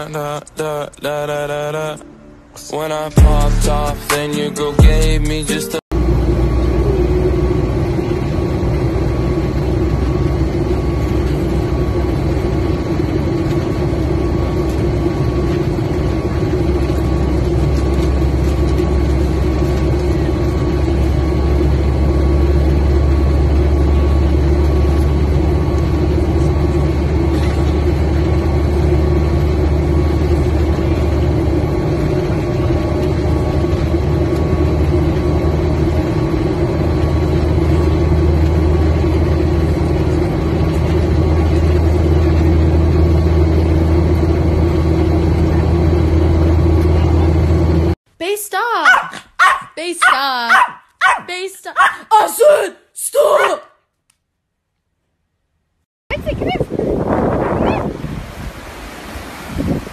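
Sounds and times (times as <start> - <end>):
jet engine roar: 5.9 - 48.0
faint steady whines: 6.0 - 48.0.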